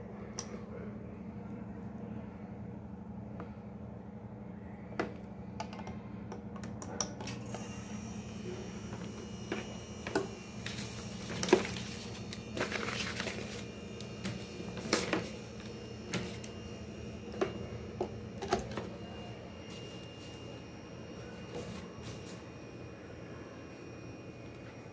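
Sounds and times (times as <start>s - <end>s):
steady low hum: 0.0s - 24.9s
paper rustling: 10.7s - 15.4s.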